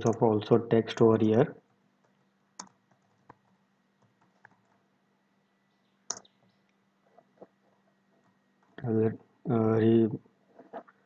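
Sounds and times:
faint electrical hum: 0.0 - 11.0
computer keyboard keystrokes: 2.6 - 3.4.

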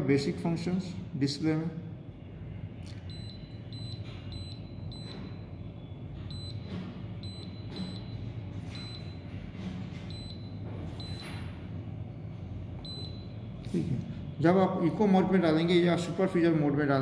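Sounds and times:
low steady hum: 0.0 - 16.3
short high beeps: 3.1 - 5.4, 6.3 - 6.6, 7.2 - 9.2, 10.1 - 11.3.

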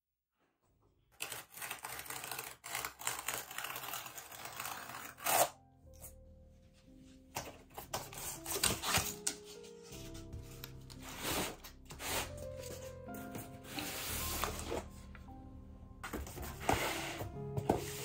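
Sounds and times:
cardboard tearing: 1.2 - 5.6, 7.8 - 9.6
soft background music: 2.7 - 18.0
rustling scraping handling noise: 11.0 - 15.0, 16.0 - 18.0.

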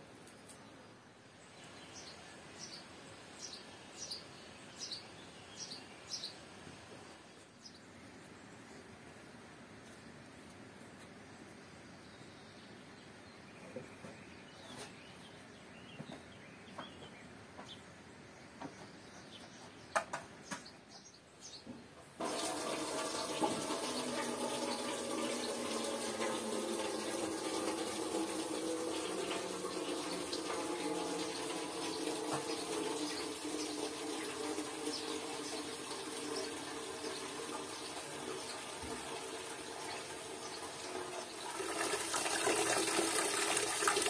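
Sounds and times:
water tap running into basin: 22.2 - 44.0
water splashing: 38.2 - 44.0.

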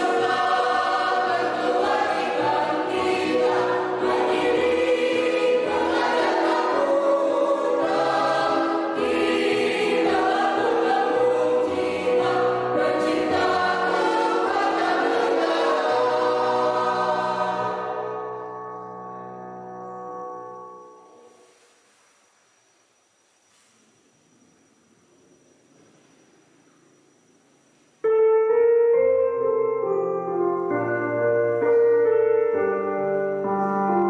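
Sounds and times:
mixed choir singing: 0.0 - 18.4.

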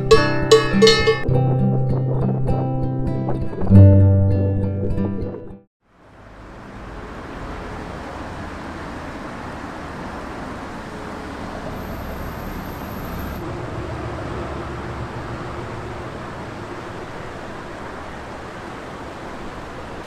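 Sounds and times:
road traffic noise: 5.8 - 20.0.

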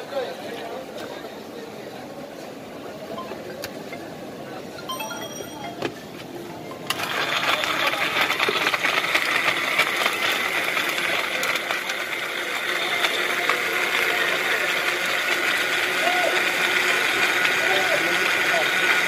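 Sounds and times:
blender running: 6.9 - 19.0.

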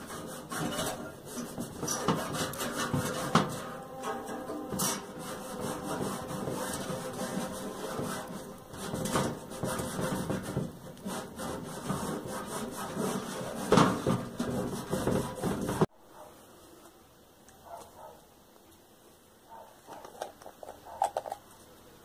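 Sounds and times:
scouring pad scraping metal: 0.0 - 15.9.

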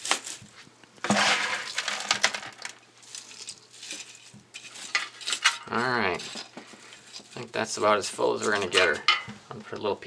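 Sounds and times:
grape stems crunching in metal can: 0.0 - 0.4, 1.0 - 9.0.

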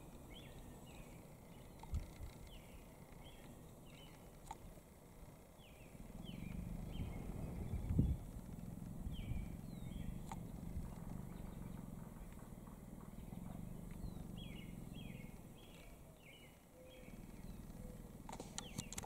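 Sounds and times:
low rumble: 5.9 - 15.7.

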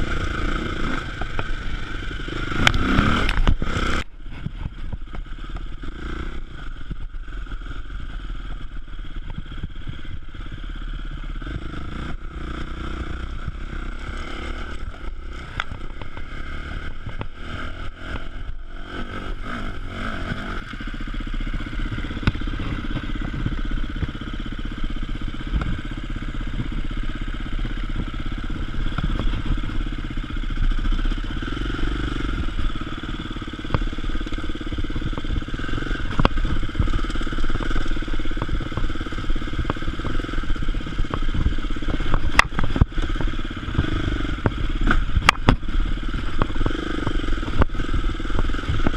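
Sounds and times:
clatter and knocks over rough ground: 0.0 - 18.4, 20.7 - 48.9
dirt bike engine running: 0.0 - 48.9.

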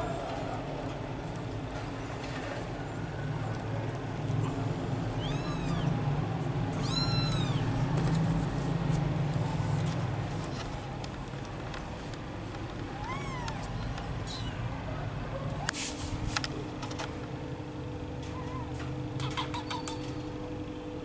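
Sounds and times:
steady low hum: 0.0 - 19.4
kitten meowing: 4.4 - 6.1, 6.7 - 7.8, 13.0 - 14.6.

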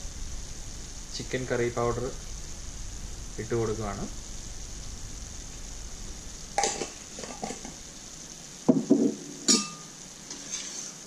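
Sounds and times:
food sizzling in a pan: 0.0 - 11.0
spoon clinking and knocking: 9.5 - 9.8.

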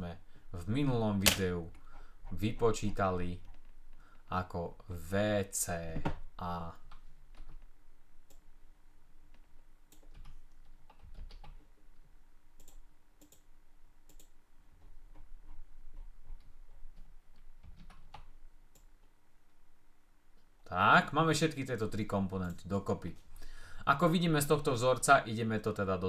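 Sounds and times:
faint steady hum: 0.0 - 26.0
computer mouse clicks: 12.6 - 13.5, 14.1 - 14.4.

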